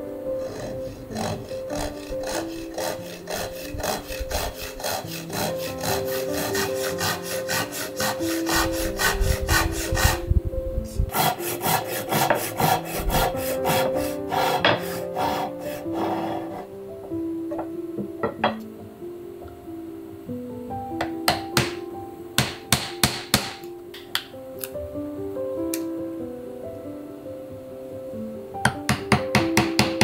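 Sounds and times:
background music: 0.0s - 30.0s
hand saw cutting wood: 0.4s - 10.2s, 11.1s - 16.7s.

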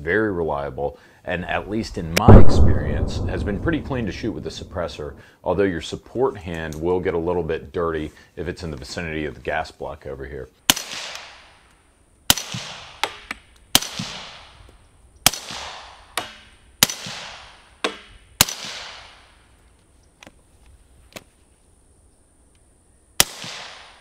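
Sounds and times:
suppressed rifle shots echoing: 2.2s - 5.2s.

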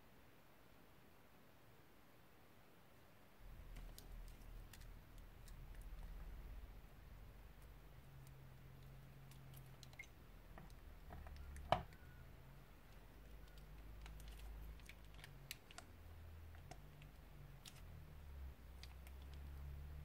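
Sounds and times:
low steady hum: 3.0s - 20.0s
plastic piping bag crinkling: 3.4s - 6.2s, 12.8s - 17.9s.

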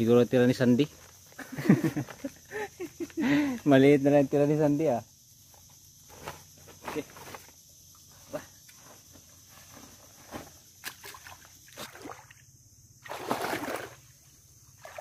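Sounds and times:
wading through shallow water: 10.8s - 12.4s, 13.0s - 15.0s.

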